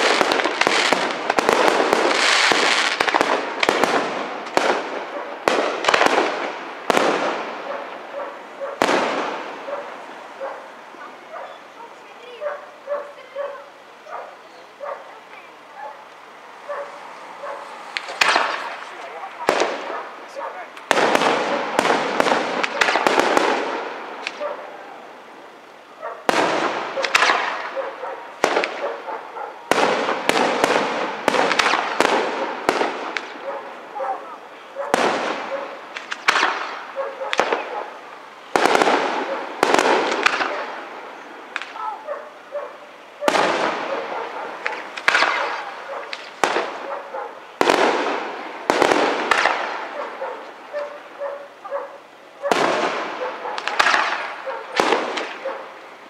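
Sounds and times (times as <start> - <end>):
firework shells bursting: 0.0 - 8.0, 17.6 - 24.4, 26.2 - 33.5, 34.9 - 41.9, 43.2 - 51.1, 52.5 - 55.5
crackling firework trails: 0.0 - 56.0.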